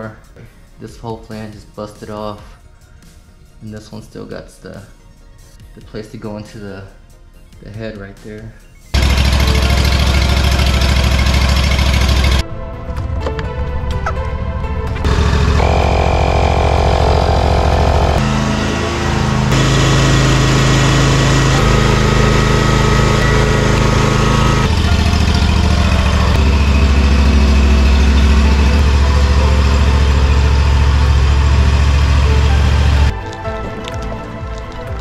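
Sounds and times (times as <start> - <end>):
mower engine running: 9.0 - 12.4, 15.0 - 33.1.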